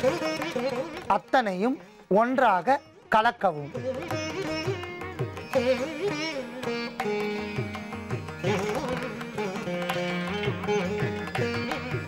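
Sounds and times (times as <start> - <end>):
plucked string melody: 3.6 - 12.0.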